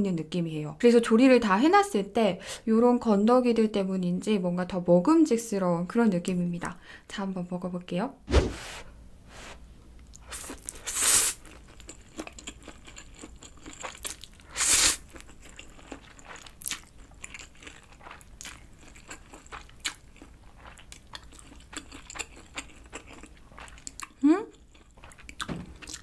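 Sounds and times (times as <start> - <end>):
chewing: 11.4 - 26.0
person slurping noodles: 14.5 - 15.0.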